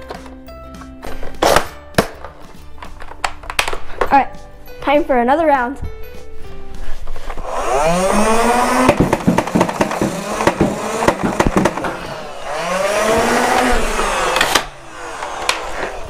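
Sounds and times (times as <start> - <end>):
motorized flywheels whirring: 7.3 - 16.0.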